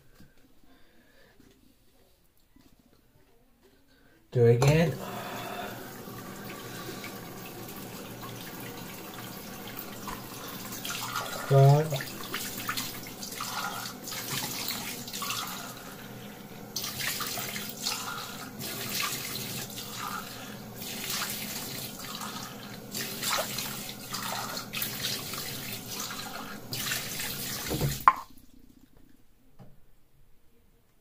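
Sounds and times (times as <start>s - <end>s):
faucet running into a sink: 4.6s - 28.4s.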